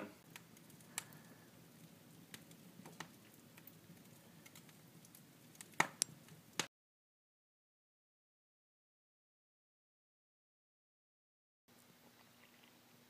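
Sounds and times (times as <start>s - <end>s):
wood fire crackling: 0.0s - 6.7s.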